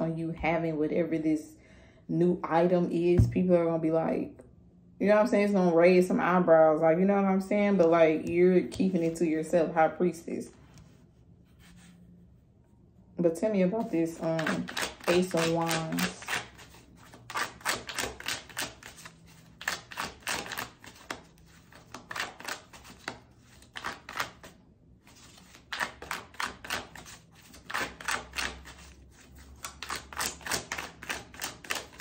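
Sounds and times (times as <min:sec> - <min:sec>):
cards being shuffled: 0:08.6 - 0:09.3, 0:13.8 - 0:32.0.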